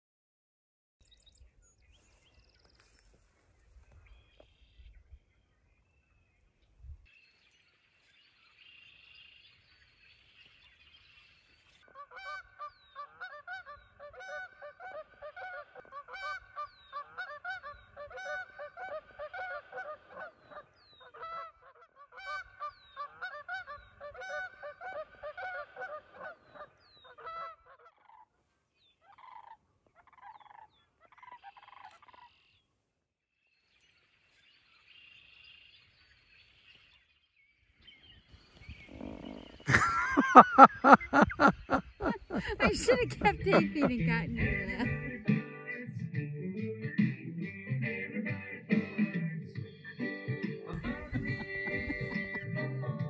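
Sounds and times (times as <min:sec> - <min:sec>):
faint bird chirps: 0:01.0 - 0:12.0, 0:28.8 - 0:32.7, 0:33.4 - 0:39.7
geese honking: 0:11.9 - 0:28.3, 0:38.9 - 0:45.2, 0:50.7 - 0:53.0.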